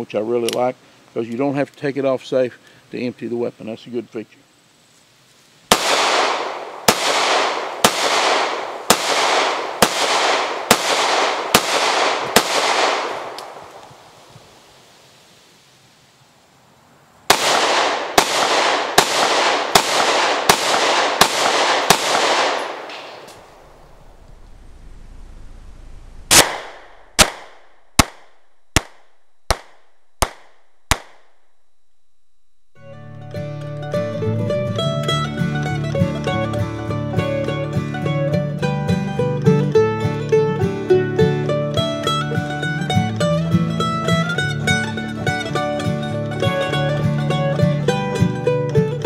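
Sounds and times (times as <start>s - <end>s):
pistol shots with echo: 5.7s - 14.1s, 17.3s - 23.5s, 26.3s - 31.4s.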